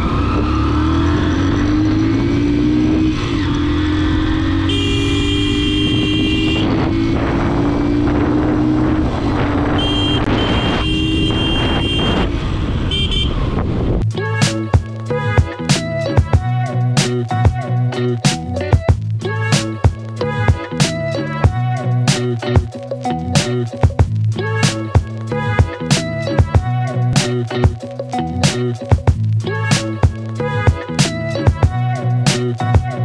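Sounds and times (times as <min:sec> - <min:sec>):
motorcycle engine running: 0:00.0 - 0:13.8
vehicle horn blasts: 0:04.6 - 0:06.9, 0:09.6 - 0:13.4
music: 0:14.0 - 0:33.0.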